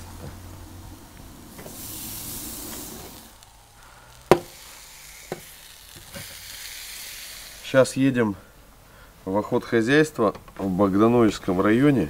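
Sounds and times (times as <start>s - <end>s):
sharp knock: 4.3s - 4.5s.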